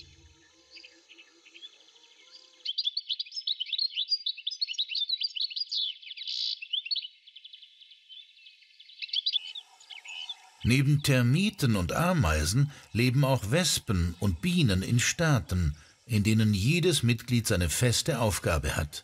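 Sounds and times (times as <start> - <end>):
small birds chirping: 0.0 - 19.0
faint background music: 10.6 - 19.0.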